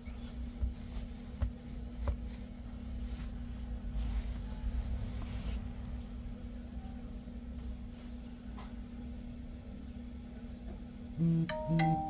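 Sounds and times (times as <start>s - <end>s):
steady low hum and rumble: 0.0s - 12.0s
faint taps and handling knocks: 0.3s - 2.5s.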